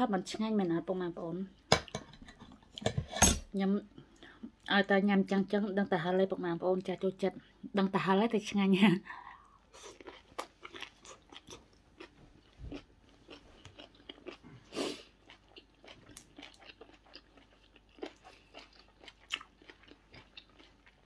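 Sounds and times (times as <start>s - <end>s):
person chewing crunchy food: 9.6s - 21.0s.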